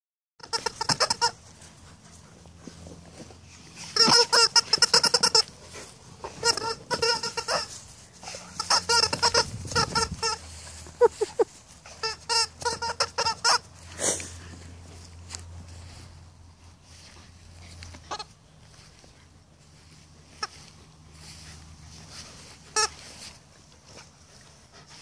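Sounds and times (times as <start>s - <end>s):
dogs yipping and whining: 6.2s - 13.7s.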